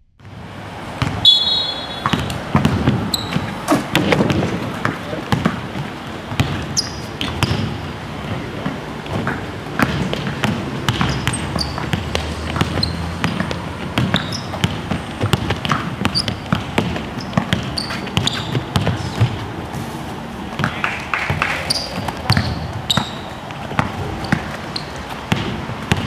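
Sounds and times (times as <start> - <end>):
basketballs bouncing on court: 0.2 - 26.0
shoe squeaks: 1.2 - 4.2, 6.4 - 7.8, 10.9 - 20.1, 21.4 - 25.4.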